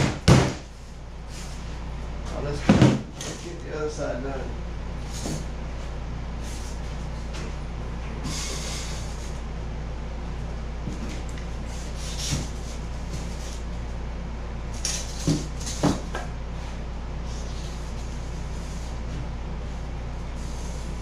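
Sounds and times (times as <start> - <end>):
foam board knocks and rustling: 0.0 - 0.7, 2.6 - 3.1, 15.2 - 16.2
steady low hum: 0.0 - 21.0.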